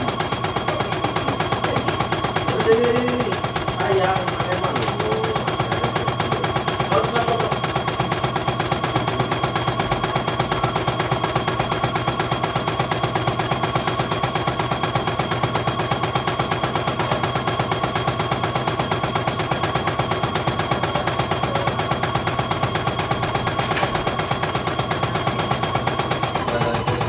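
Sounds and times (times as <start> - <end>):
embroidery machine needle clatter: 0.0 - 27.0.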